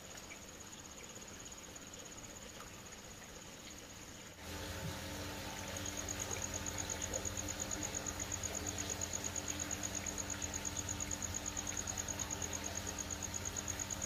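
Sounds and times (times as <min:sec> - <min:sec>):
air pump humming: 0:04.4 - 0:14.0.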